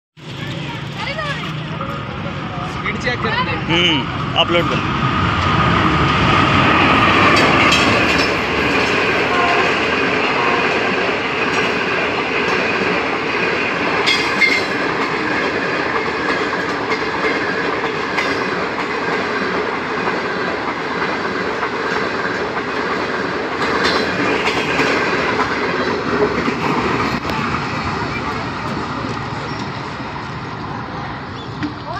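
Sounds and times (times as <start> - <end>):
diesel locomotive passing: 0.2 - 31.9
wheels clacking over rail joints: 6.2 - 30.7.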